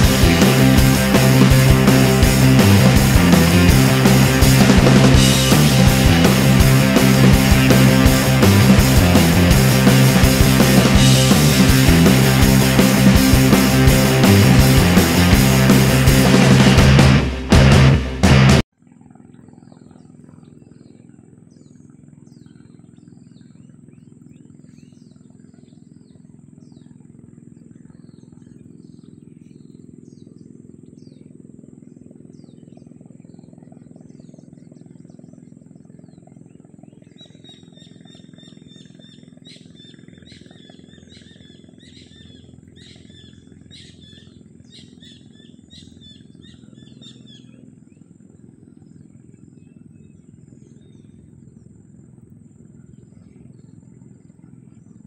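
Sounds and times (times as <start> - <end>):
steady low rumble: 0.0 - 18.7, 30.4 - 55.0
high bird chirps: 36.1 - 47.6
rapid repeated high calls: 37.4 - 47.6.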